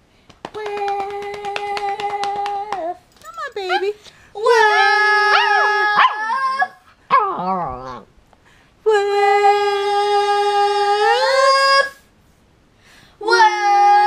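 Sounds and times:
girl singing: 0.6 - 6.8, 8.8 - 12.0, 13.2 - 14.0
dog howling: 4.5 - 8.1.

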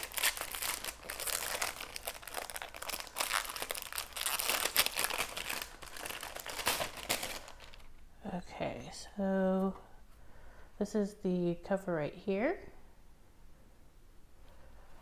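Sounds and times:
wrapping paper crinkling: 0.0 - 7.9.

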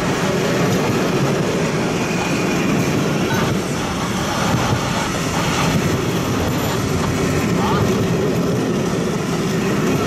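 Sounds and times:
train wheels running on rails: 0.0 - 10.0.

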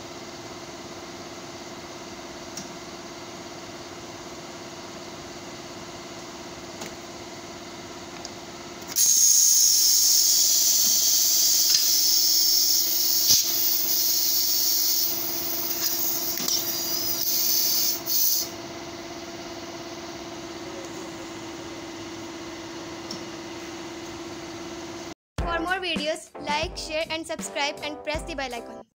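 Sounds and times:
machine hum: 0.0 - 25.2
compressed air hissing: 8.9 - 18.5.

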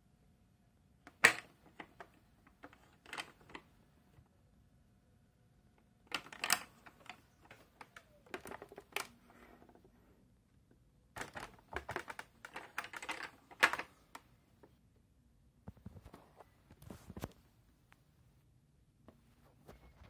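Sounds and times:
plastic cover clicks and rattles: 1.1 - 3.7, 6.1 - 9.7, 11.2 - 14.2.

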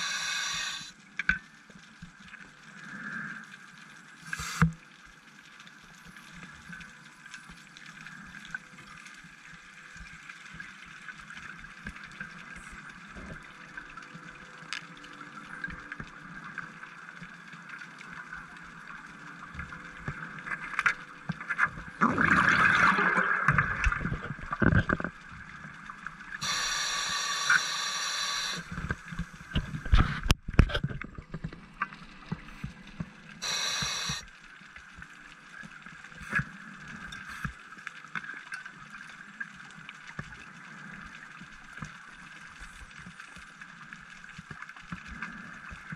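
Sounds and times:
hissing regulator inhalation: 0.0 - 0.9, 4.3 - 4.7, 26.4 - 28.8, 33.4 - 34.3
steady underwater hiss: 0.0 - 22.1, 23.5 - 45.9
exhaust bubbles gurgling: 22.0 - 25.2.

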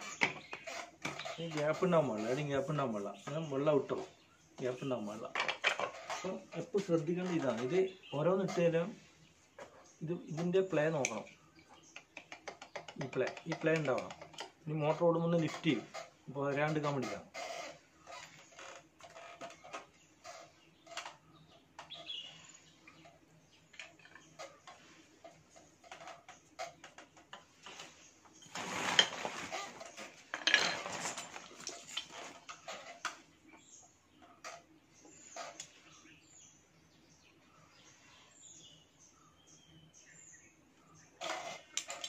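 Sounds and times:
plastic parts clicking and clattering: 5.2 - 7.8, 25.9 - 33.2.

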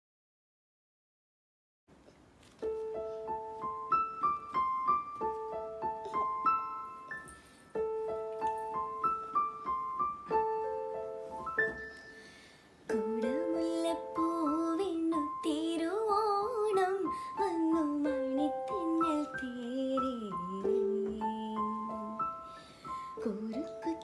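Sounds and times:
woman singing: 12.9 - 24.0.

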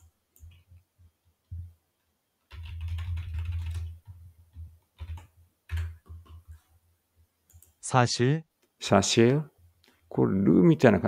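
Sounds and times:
typing on computer keyboard: 0.0 - 0.8, 2.5 - 6.6.

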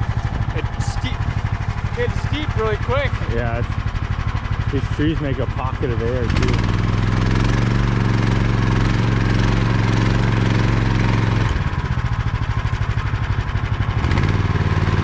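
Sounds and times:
snow machine engine running: 0.0 - 15.0.

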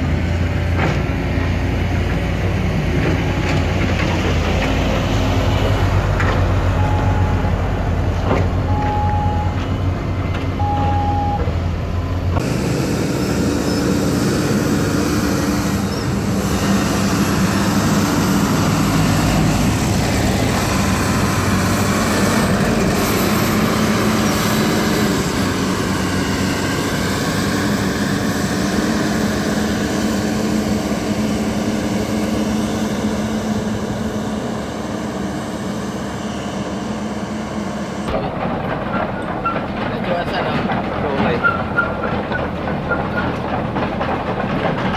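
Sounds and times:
diesel engines running: 0.0 - 44.9
short high beeps: 8.7 - 9.6, 10.6 - 11.5.

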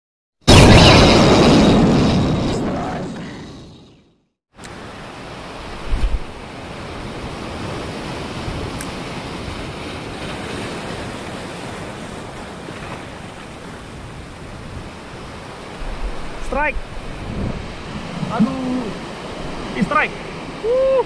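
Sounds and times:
surf washing over rocks: 4.7 - 21.0.

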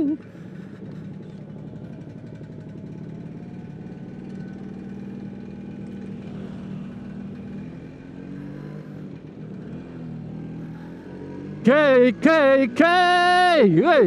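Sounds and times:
scooter engine idling: 0.0 - 14.0.

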